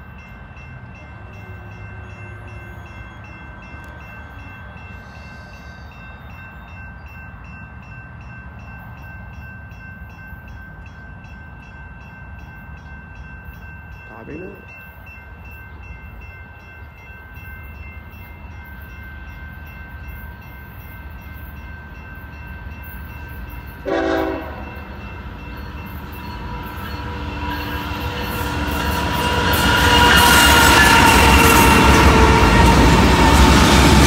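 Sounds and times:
diesel locomotive engine and rail noise: 0.0 - 34.0
train horn: 23.8 - 24.9, 26.4 - 33.5.

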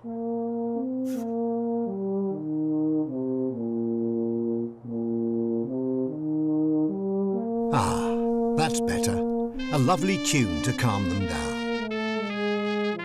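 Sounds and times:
slow brass tune: 0.0 - 13.0
brief hiss: 1.1 - 1.3.

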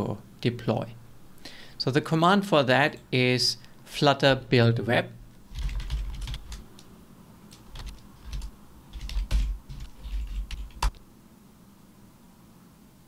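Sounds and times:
typing on computer keyboard: 5.5 - 6.7, 7.6 - 11.0.

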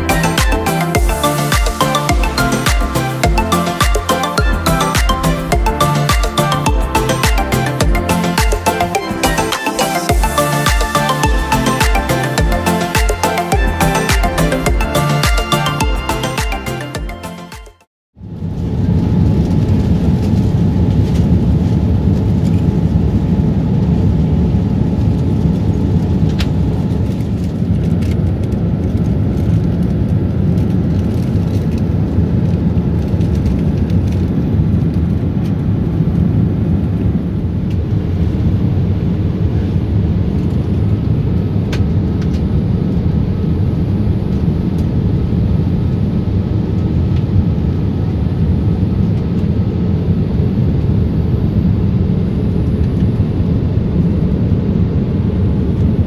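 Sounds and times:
jet engine cabin rumble: 18.2 - 56.0.

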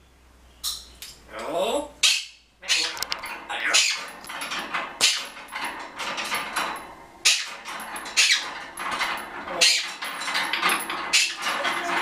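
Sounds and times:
parrot harsh calls: 2.0 - 4.1, 8.2 - 8.4, 9.5 - 10.0.

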